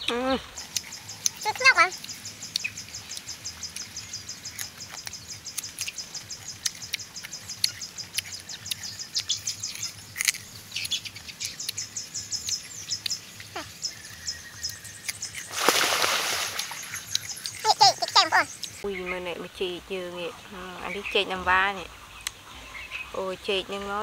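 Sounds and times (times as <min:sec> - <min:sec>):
birds chirping: 0:00.0 - 0:24.0
person chewing crunchy fruit: 0:00.4 - 0:18.8.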